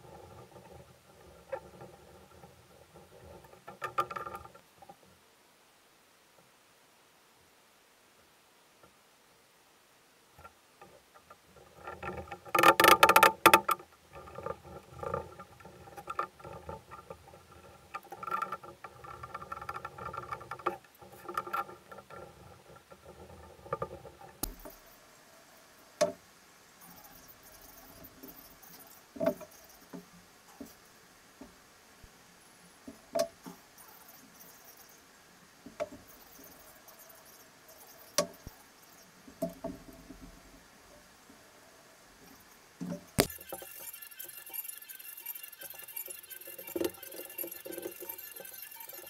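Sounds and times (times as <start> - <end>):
wooden parts and clamps rattling: 11.2 - 24.8, 42.9 - 49.0
light clicks and taps: 23.7 - 24.8.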